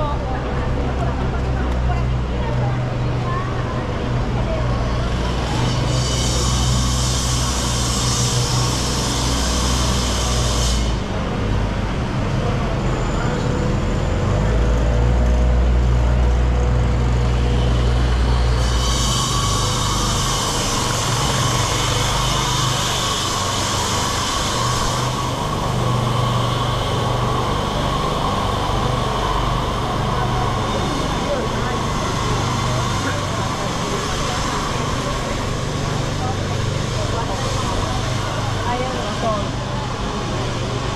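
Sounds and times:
people and city noise: 0:00.0 - 0:40.9.

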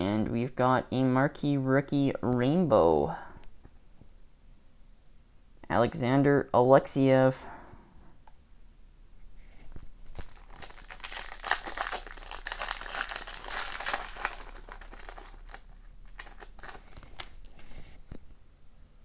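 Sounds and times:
foil wrapper tearing and crinkling: 0:10.1 - 0:17.7
cards crackling and clicking: 0:10.1 - 0:17.8.

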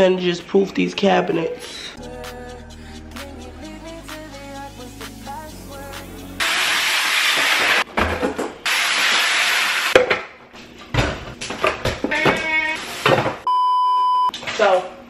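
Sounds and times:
hissing bursts: 0:06.4 - 0:07.8
steady beep tone: 0:13.5 - 0:14.3.

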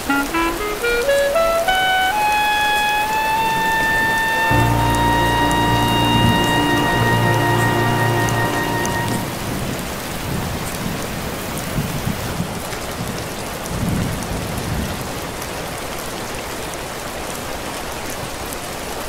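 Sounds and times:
saxophone music: 0:00.0 - 0:09.8
rain on a hard surface: 0:00.0 - 0:19.0.

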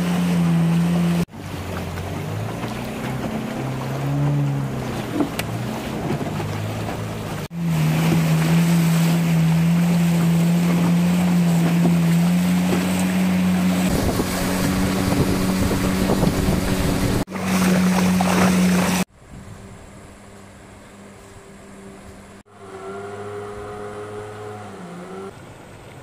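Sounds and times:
outboard motor running: 0:00.0 - 0:25.6
rushing river water: 0:00.0 - 0:26.0
wind on microphone: 0:13.6 - 0:17.3.

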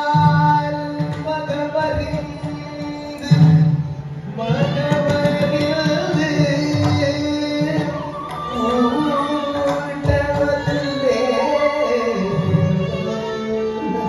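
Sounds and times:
solo vocalist singing: 0:04.3 - 0:14.0.

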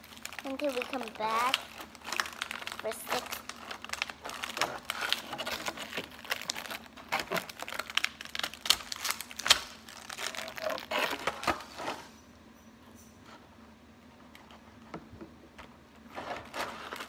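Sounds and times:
plastic packaging crinkling: 0:00.0 - 0:12.1, 0:16.0 - 0:17.0.

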